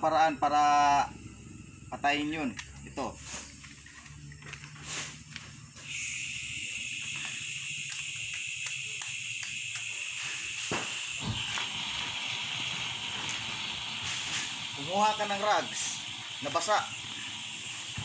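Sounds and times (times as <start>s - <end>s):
burning gas flame hissing: 1.0s - 3.8s, 4.6s - 18.0s
gas hissing from cylinder valve: 4.8s - 18.0s.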